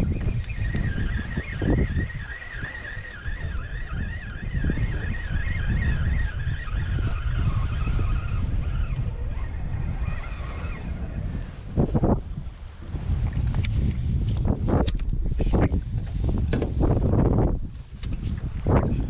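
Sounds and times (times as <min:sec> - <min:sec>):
thin high wavering whine: 0:00.0 - 0:12.4
wind rumbling on microphone: 0:00.0 - 0:19.0.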